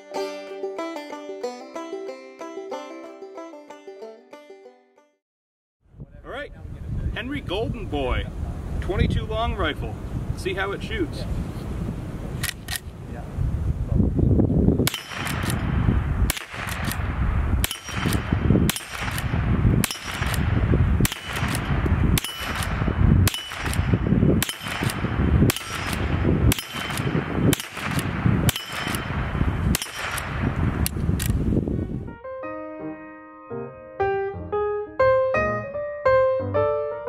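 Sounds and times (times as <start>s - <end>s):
metallic clack of rifle lever: 12.4s - 12.9s, 29.8s - 31.4s
rifle shots: 14.8s - 31.3s.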